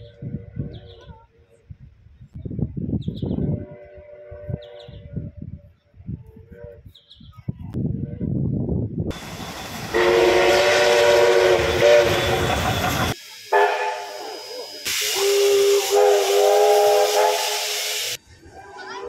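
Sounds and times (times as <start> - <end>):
steam hissing: 9.1 - 18.2
steam locomotive whistle: 9.1 - 18.2.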